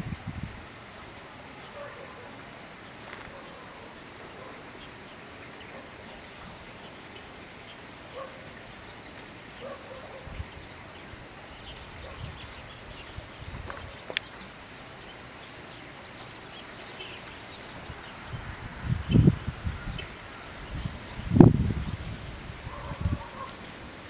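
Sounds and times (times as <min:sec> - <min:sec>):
steady hiss: 0:00.0 - 0:24.0
distant birds chirping: 0:00.5 - 0:23.5.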